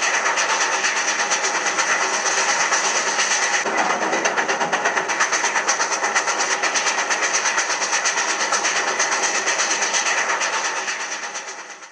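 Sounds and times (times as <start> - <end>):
steam locomotive chuffing: 0.0 - 11.9.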